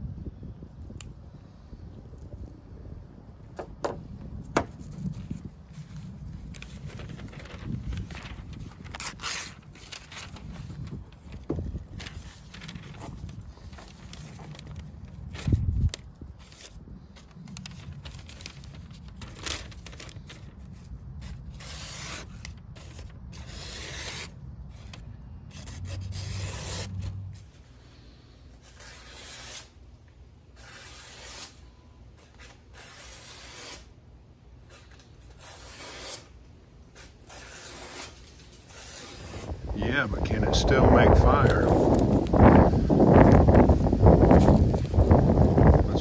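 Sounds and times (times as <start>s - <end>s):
wind rumble on microphone: 0.0s - 21.6s, 39.2s - 46.0s
knife slicing newspaper: 7.6s - 10.6s, 18.2s - 24.9s, 28.6s - 29.7s, 36.9s - 39.5s.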